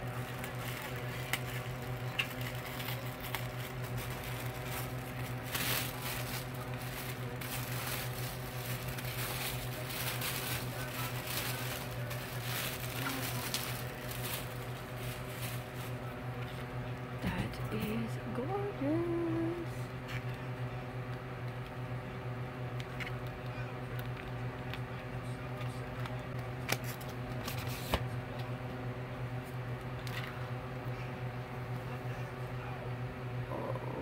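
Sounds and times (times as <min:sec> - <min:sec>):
steady low hum: 0:00.0 - 0:34.0
tissue paper rustling: 0:02.6 - 0:16.1.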